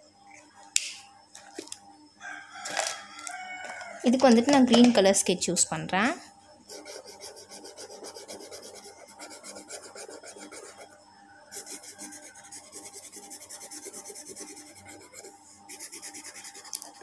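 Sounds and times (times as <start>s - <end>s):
felt-tip pen scratching on card: 6.7s - 10.9s, 11.6s - 17.0s.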